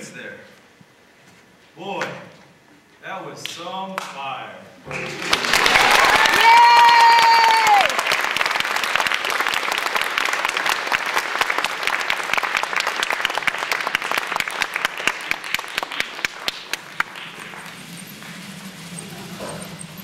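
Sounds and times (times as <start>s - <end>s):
audience applauding: 4.8s - 20.0s.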